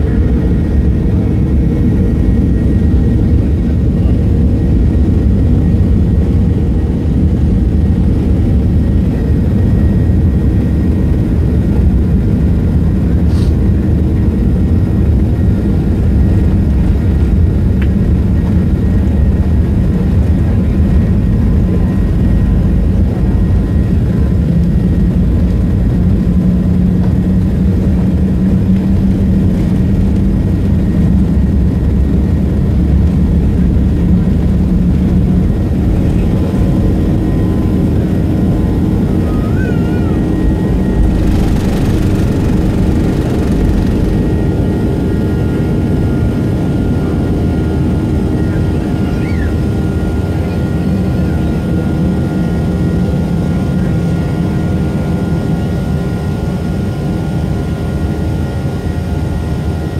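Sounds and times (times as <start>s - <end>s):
jet engines roaring: 0.0s - 52.9s
runway rumble: 10.4s - 49.4s
low hum: 16.1s - 46.3s.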